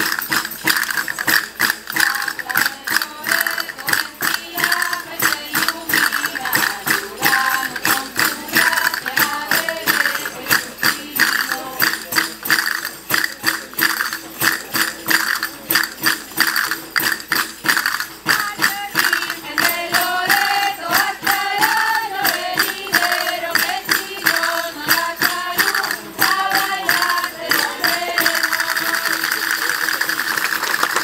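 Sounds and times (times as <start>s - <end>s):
tambourines struck: 0.0s - 31.0s
women singing folk song: 1.9s - 12.0s, 18.3s - 29.4s.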